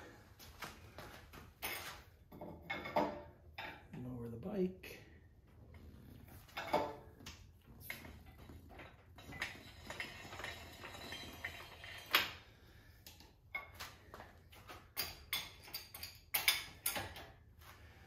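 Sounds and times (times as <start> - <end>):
metal chain clinks and knocks: 7.8 - 12.4, 14.6 - 17.4.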